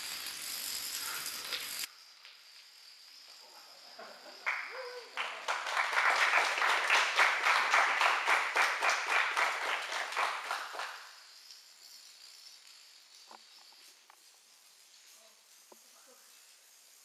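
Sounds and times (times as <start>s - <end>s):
dominoes toppling clatter: 0.0s - 1.9s, 9.8s - 14.5s.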